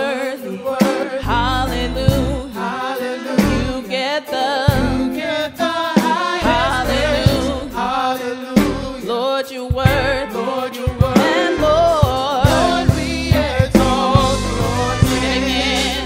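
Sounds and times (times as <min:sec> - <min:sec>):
live band playing worship song: 0:00.0 - 0:16.0
singers in harmony: 0:00.0 - 0:16.0.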